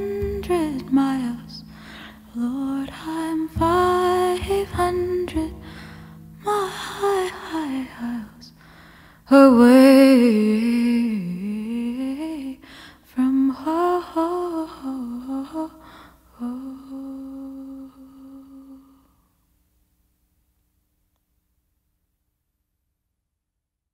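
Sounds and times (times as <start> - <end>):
woman singing wordlessly: 0.0 - 8.6, 9.3 - 19.0
woman breathing: 1.6 - 2.3, 5.6 - 6.4, 8.5 - 9.3, 12.6 - 13.1, 15.8 - 16.4.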